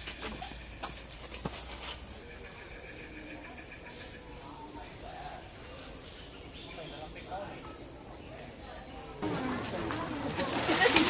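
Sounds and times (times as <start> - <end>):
insects droning: 0.0 - 11.0
faint voices: 2.1 - 11.0.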